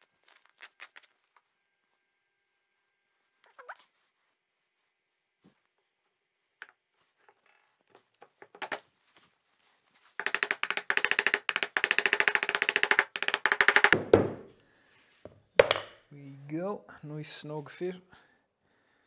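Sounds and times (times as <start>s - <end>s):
mallet tapping wood: 10.2s - 14.5s
wood knocks: 10.2s - 14.5s, 15.6s - 16.0s.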